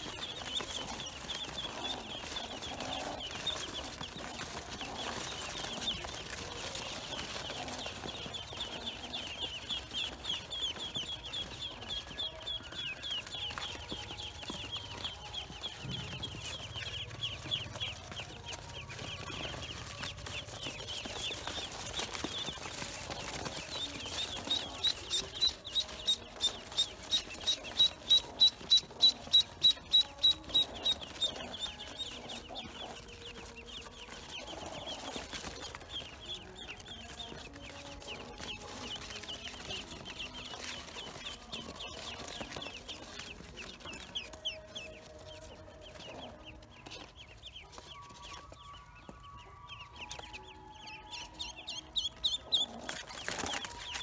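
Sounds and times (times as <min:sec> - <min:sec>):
ducklings peeping: 0:00.0 - 0:54.0.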